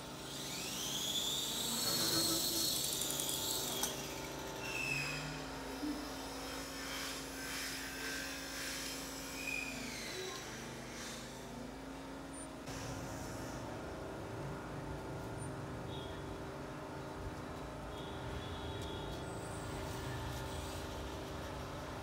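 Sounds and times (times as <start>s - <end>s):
electric helicopter motors whining: 0.0s - 13.9s.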